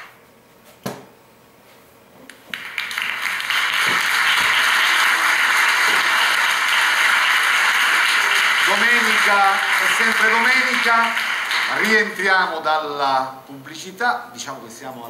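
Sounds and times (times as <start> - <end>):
audience applauding: 2.4 - 12.7.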